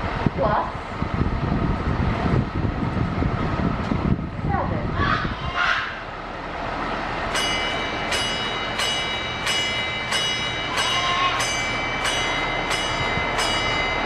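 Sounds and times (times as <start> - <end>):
small hand bell ringing: 7.3 - 14.0.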